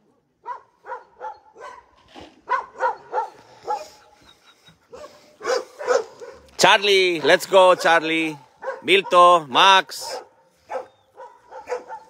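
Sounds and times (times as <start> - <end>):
dog yipping and barking: 0.4 - 6.5, 7.2 - 9.3, 10.2 - 12.0.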